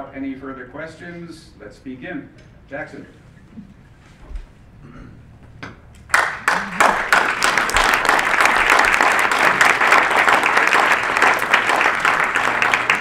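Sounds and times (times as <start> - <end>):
audience applauding: 6.1 - 13.0.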